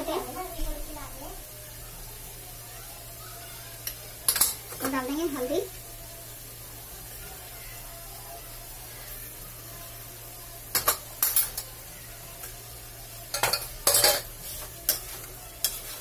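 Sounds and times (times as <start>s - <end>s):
faint sizzle: 0.0s - 16.0s
spoon scraping a metal pan: 13.3s - 16.0s.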